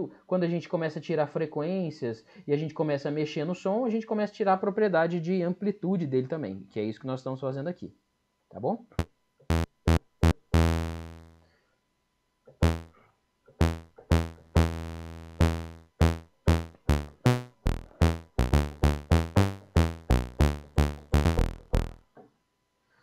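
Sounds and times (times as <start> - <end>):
synthesizer pluck bass notes: 9.5 - 11.4, 12.6 - 12.9, 13.6 - 22.0.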